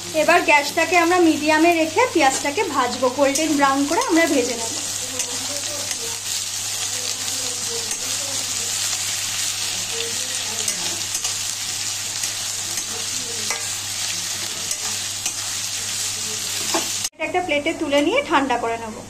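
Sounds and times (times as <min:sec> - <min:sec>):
onions sizzling in oil: 0:00.0 - 0:17.2
metal spatula scraping: 0:07.6 - 0:15.8.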